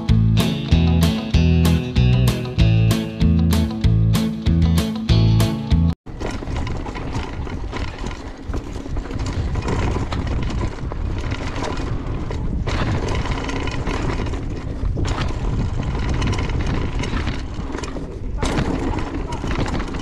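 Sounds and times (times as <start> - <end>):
bike rattling over bumps: 6.1 - 20.0
wind rumble on microphone: 6.1 - 20.0.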